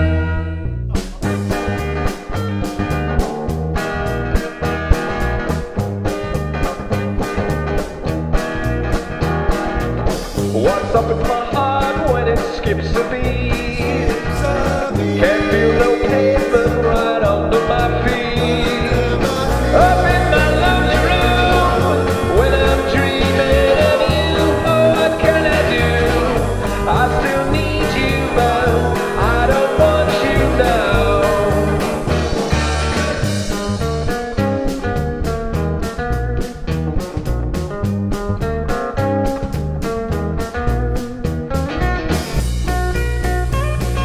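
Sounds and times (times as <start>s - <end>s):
rock and roll band playing: 0.0s - 44.0s
strummed acoustic guitar: 0.0s - 44.0s
lead and harmony vocals: 10.6s - 33.8s.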